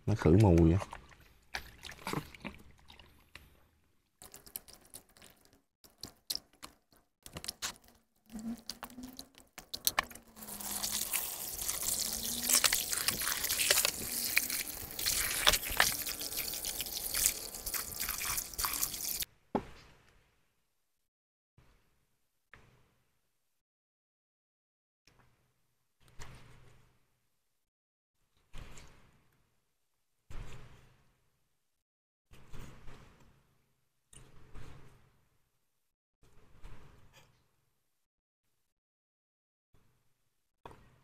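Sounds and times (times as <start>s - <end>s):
hands squelching offal in water: 0.8s - 3.3s, 7.4s - 19.2s
running water pouring into basin: 8.6s - 19.3s.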